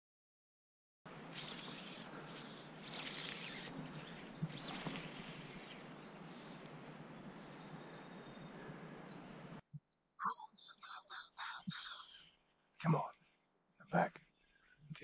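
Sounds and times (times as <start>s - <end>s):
steady riverside hiss: 1.1s - 15.0s
high-pitched animal calls: 1.3s - 5.8s.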